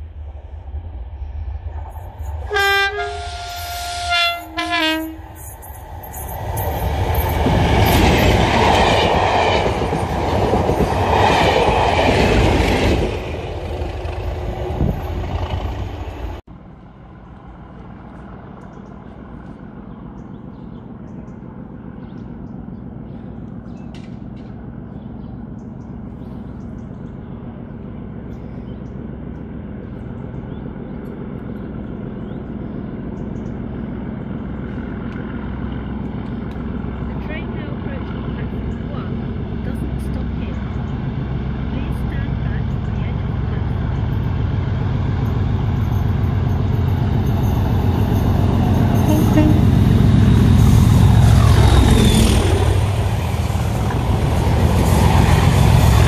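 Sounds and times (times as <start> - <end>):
train engine and wheel noise: 0.0 - 56.0
train horn blasts: 2.4 - 5.6, 48.9 - 50.8.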